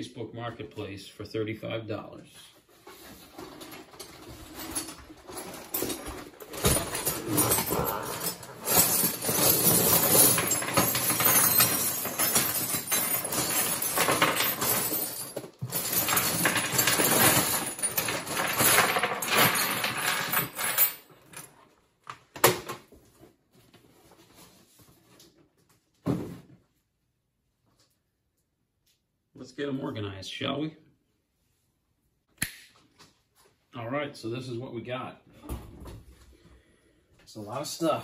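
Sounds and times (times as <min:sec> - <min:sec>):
metal tools clattering: 0:02.8 - 0:21.5.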